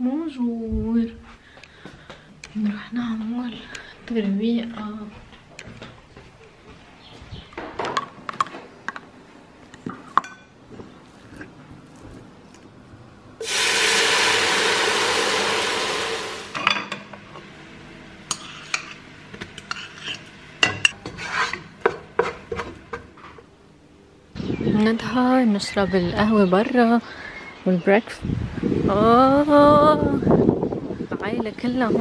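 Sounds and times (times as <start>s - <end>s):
milk pouring hiss: 13.4s - 16.6s
wooden spoon scraping a pan: 19.6s - 20.3s, 21.0s - 23.4s.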